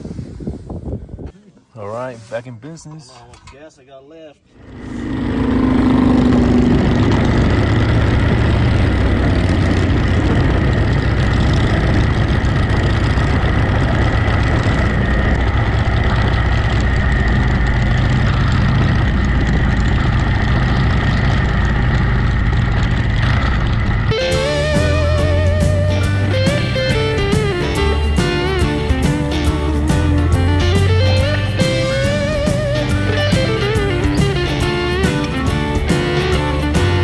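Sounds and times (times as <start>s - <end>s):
wind and road noise: 0.0s - 1.4s, 4.5s - 37.0s
motorcycle engine running: 4.6s - 37.0s.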